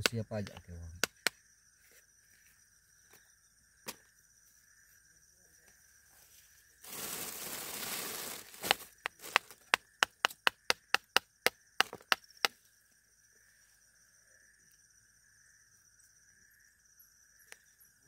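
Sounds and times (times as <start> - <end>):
sharp clicks and taps: 0.0 - 1.4, 9.0 - 12.6
food rustling: 6.8 - 9.6.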